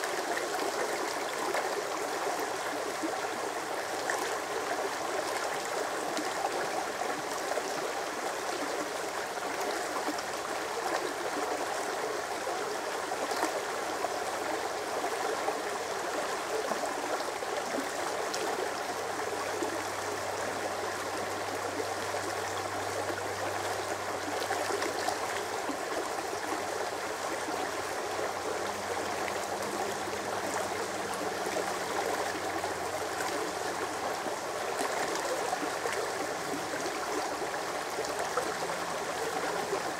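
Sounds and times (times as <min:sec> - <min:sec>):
brook babbling over stones: 0:00.0 - 0:39.9.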